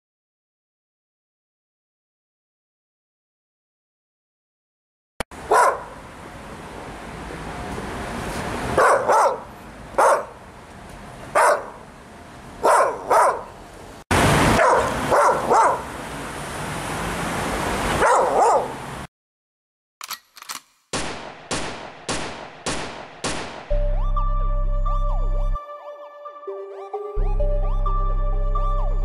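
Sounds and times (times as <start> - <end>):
dog barking: 5.5 - 6.0, 8.8 - 10.4, 11.3 - 11.8, 12.6 - 13.6, 14.6 - 15.9, 18.0 - 18.8.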